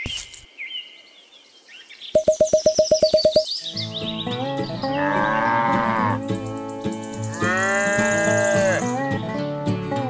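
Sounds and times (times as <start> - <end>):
bird chirps: 0.0 - 5.0
guitar-led tune: 2.2 - 10.0.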